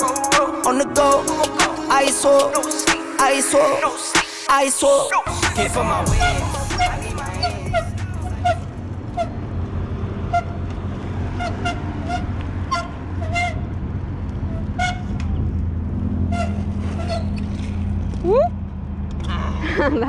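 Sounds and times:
engine humming: 4.8 - 20.0.

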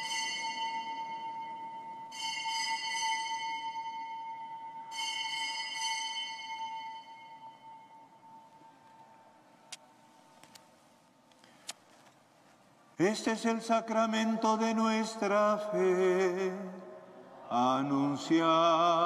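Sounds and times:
altar bells ringing: 0.0 - 9.5.

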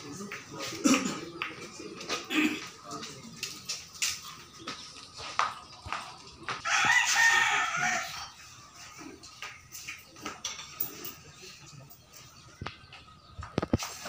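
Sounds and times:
rooster crowing: 6.6 - 8.3.

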